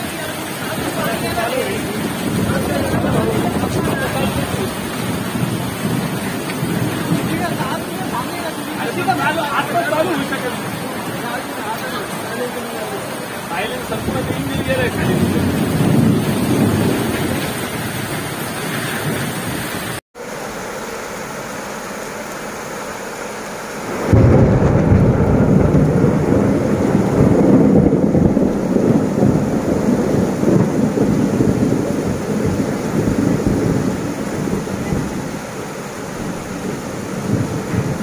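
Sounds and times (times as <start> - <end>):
loud deep rumble: 0.0 - 8.3, 22.6 - 38.0
floodwater rushing: 0.0 - 38.0
torrential rain: 0.0 - 38.0.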